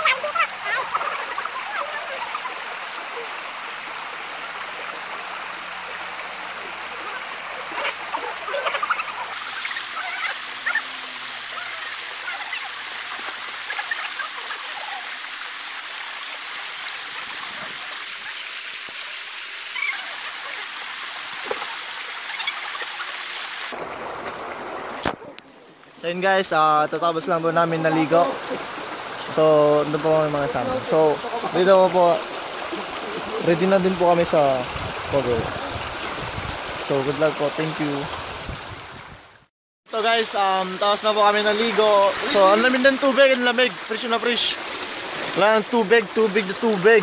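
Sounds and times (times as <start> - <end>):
river water running over rocks: 0.0 - 47.0
small water splashes: 27.7 - 39.0, 40.2 - 47.0.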